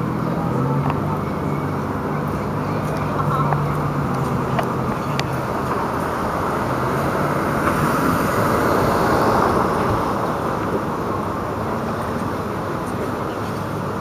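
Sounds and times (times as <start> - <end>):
car driving past: 1.8 - 12.4.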